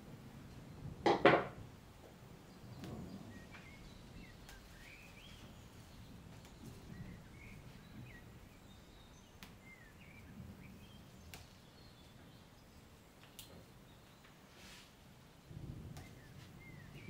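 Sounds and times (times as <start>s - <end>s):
leaves rustling softly: 1.6s - 17.0s
distant bird chirps: 2.4s - 14.4s, 15.5s - 17.0s.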